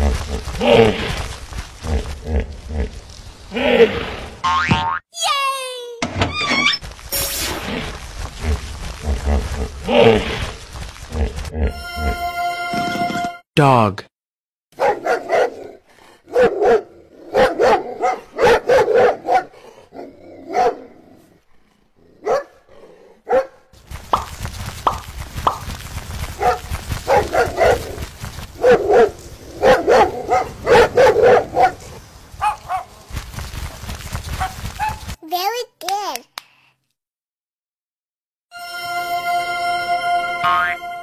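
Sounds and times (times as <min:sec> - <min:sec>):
dog barking: 0:14.8 - 0:20.9, 0:22.2 - 0:22.6, 0:23.2 - 0:23.7, 0:26.4 - 0:28.0, 0:28.6 - 0:31.8, 0:32.4 - 0:32.9, 0:34.4 - 0:35.0.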